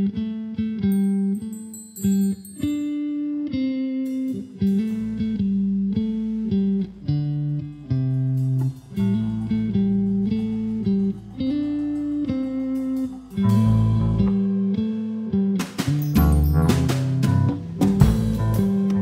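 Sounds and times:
held guitar notes: 0.0 - 19.0
bass line: 4.8 - 19.0
jazz fusion band playing: 7.9 - 14.8, 15.6 - 19.0
drum and percussion hits: 15.6 - 19.0.

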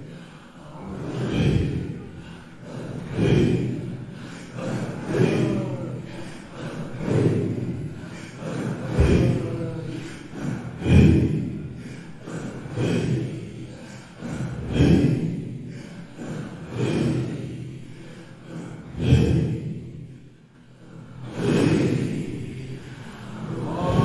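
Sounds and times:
group chanting with breathy exhalations: 0.0 - 24.0.

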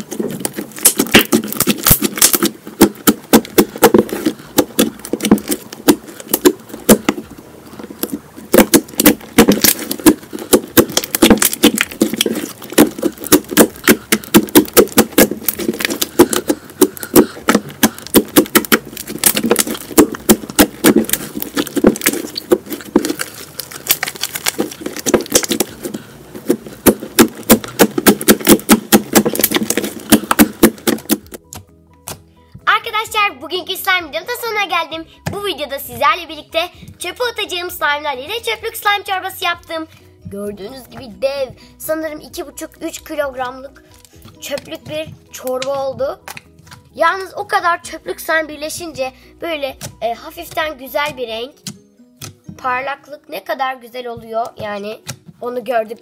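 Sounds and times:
slime popping and clicking: 8.0 - 26.0.

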